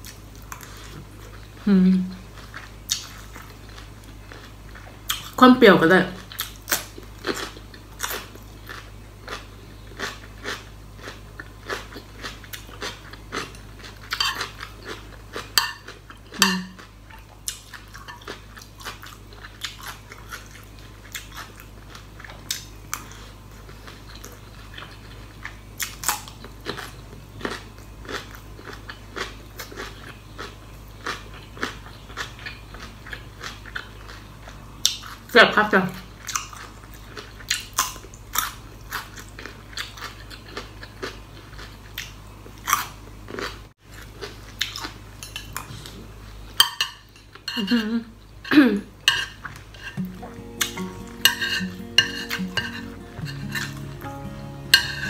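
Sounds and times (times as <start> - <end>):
crunchy chewing: 6.2 - 35.3, 36.2 - 46.6.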